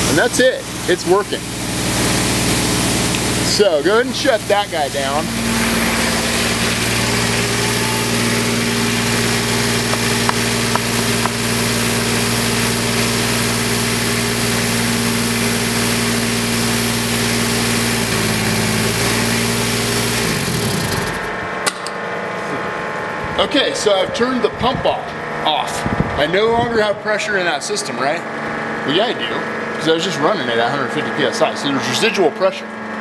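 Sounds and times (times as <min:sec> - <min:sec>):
rushing water flow: 0:00.0 - 0:14.6
fire engine pump running: 0:00.0 - 0:33.0.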